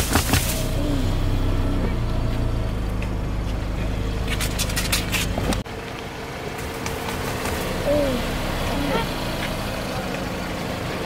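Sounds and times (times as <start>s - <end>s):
car engine humming: 0.0s - 11.0s.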